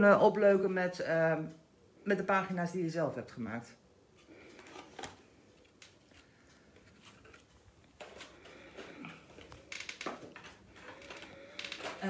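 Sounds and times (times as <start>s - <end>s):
rustling of craft items: 4.0s - 12.0s.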